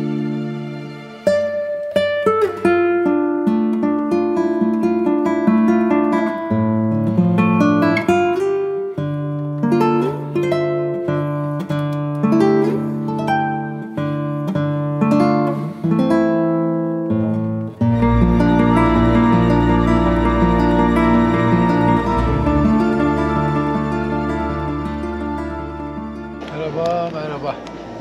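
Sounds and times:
plucked acoustic guitar: 0.0s - 27.2s
deep bass layer: 17.9s - 26.8s.

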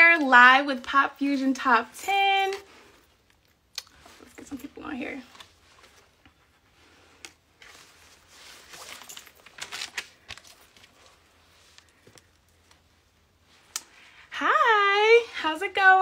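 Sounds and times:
faint rustling and handling: 0.0s - 15.2s.

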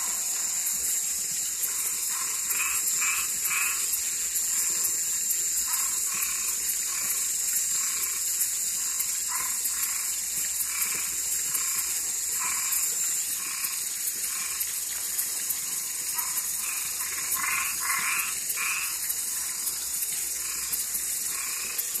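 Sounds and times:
steady high tone: 0.0s - 2.1s
high-pitched hiss: 0.0s - 22.0s
toads and tree frogs calling: 0.0s - 22.0s.

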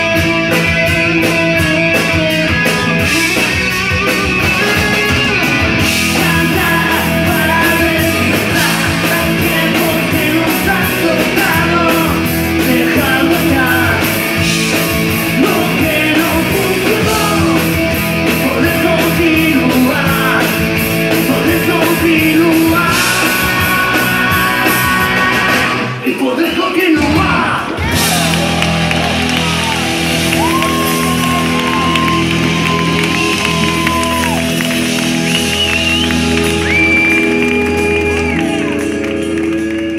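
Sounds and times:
live rock band playing: 0.0s - 39.9s
man singing lead vocal: 4.5s - 28.2s.

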